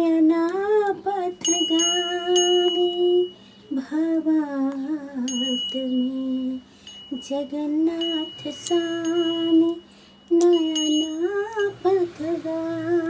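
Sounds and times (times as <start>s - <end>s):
woman singing a hymn: 0.0s - 13.0s
small bell ringing: 1.4s - 3.7s, 5.2s - 12.0s.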